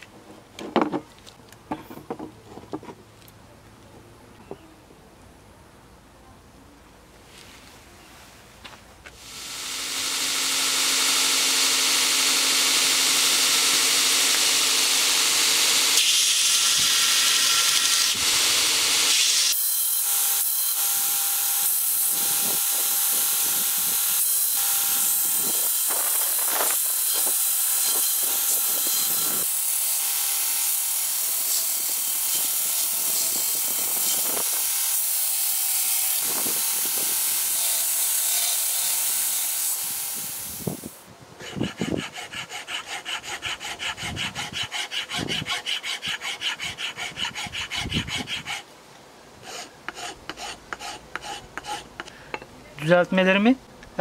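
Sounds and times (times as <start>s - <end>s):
belt grinder sanding: 9.2s - 48.7s, 49.4s - 52.1s
hand file rasping: 41.4s - 48.7s, 49.4s - 52.2s.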